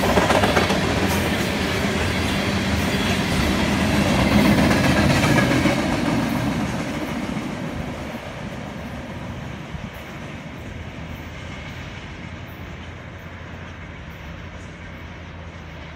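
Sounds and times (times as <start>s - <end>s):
freight train wheels rumbling on rails: 0.0s - 15.9s.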